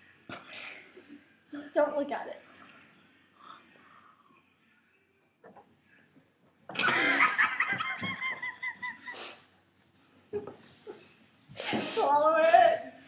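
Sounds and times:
girls laughing loudly: 6.8 - 9.4.

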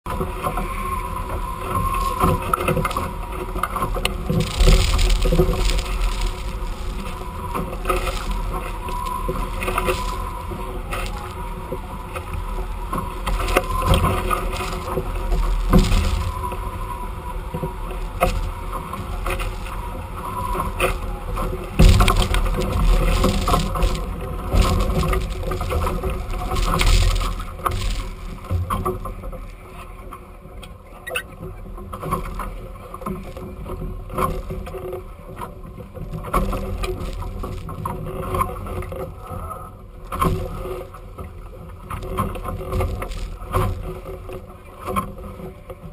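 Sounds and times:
water rushing against boat hulls: 0.1 - 30.6, 31.2 - 45.9
loud water splashing: 21.8 - 28.7.

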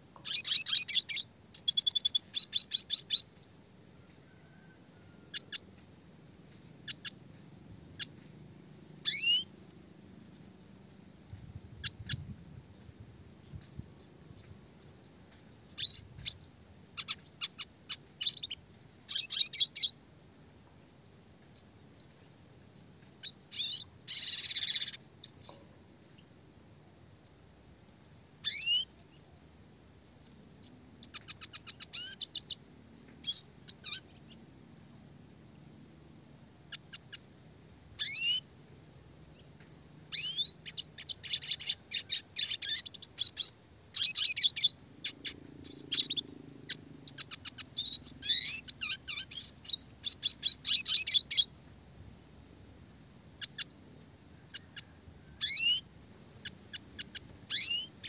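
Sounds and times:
bird singing: 0.2 - 6.1, 6.8 - 8.3, 8.9 - 9.6, 13.5 - 26.4, 27.2 - 27.5, 28.4 - 29.2, 30.2 - 34.5, 36.1 - 37.3, 38.0 - 38.5, 39.3 - 51.6, 53.4 - 53.8, 54.4 - 58.0.

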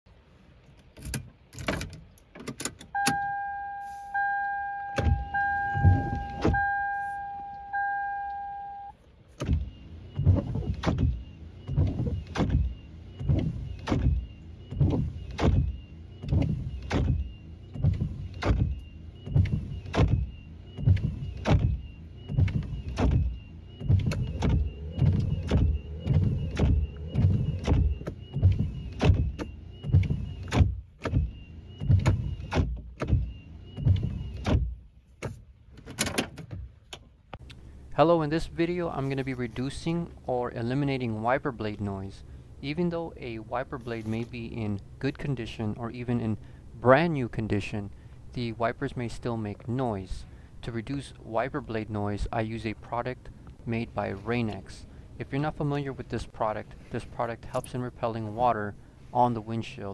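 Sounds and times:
car warning chime: 2.8 - 9.0, 11.1 - 30.6
windshield wipers rubbing glass: 4.9 - 7.3, 9.3 - 36.8.

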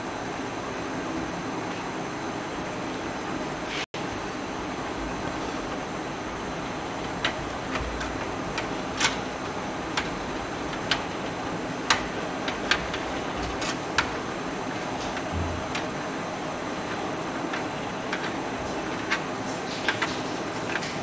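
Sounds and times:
plastic cables clicking: 6.5 - 16.1, 16.8 - 21.0.

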